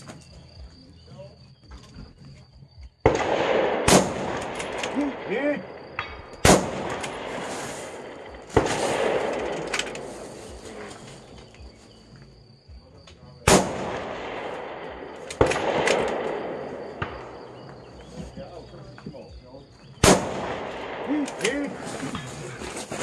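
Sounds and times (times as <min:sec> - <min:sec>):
rolling echo of gunshot: 0:03.0 - 0:11.3, 0:13.4 - 0:18.5, 0:20.0 - 0:22.1
rifle shots: 0:03.0 - 0:11.6, 0:13.5 - 0:18.5, 0:20.0 - 0:22.2.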